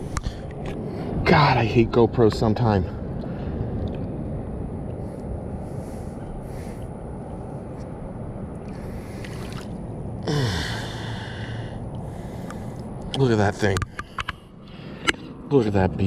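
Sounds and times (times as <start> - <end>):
man sighing: 10.2 - 11.7.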